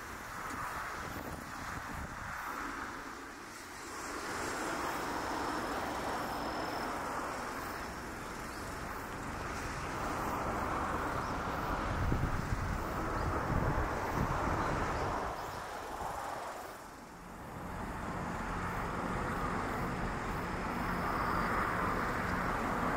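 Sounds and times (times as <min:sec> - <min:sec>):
wind on microphone: 0:00.1 - 0:03.0, 0:10.0 - 0:16.8.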